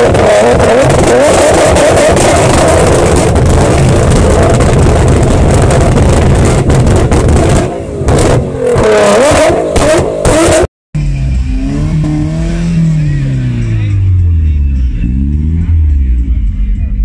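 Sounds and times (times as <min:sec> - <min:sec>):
car engine revving with exhaust bangs: 0:00.0 - 0:17.0.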